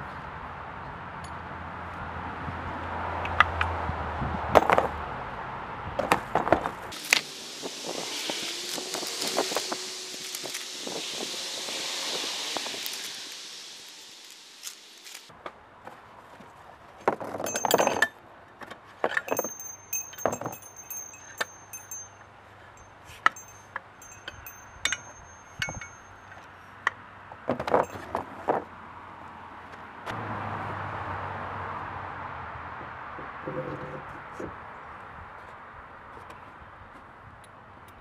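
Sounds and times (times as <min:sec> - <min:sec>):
steady hiss: 0:07.0 - 0:15.3
steel parts clinking and knocking: 0:17.4 - 0:18.2, 0:19.0 - 0:26.5, 0:27.6 - 0:28.3.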